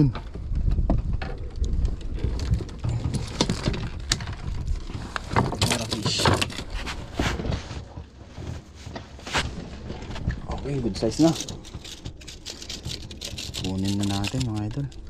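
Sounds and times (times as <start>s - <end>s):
wind on microphone: 0.2s - 5.2s
fishing gear clicks and knocks: 0.2s - 8.7s, 9.5s - 15.0s.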